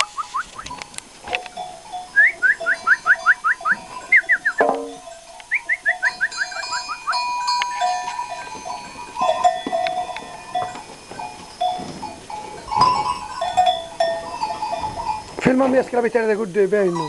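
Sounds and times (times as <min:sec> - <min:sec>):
livestock bells clanking: 0:00.0 - 0:17.0
sharp knock: 0:04.6 - 0:05.0.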